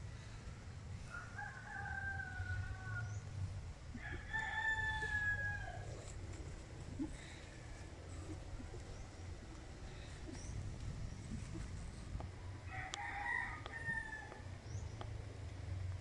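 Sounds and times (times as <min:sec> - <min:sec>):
rooster crowing: 0:01.1 - 0:03.2, 0:04.0 - 0:06.0, 0:12.4 - 0:14.5.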